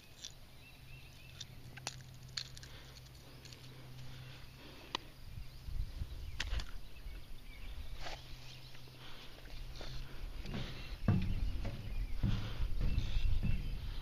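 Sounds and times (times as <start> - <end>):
forceps clicks and rustles: 1.3 - 4.1
microphone handling rumble: 9.8 - 14.0.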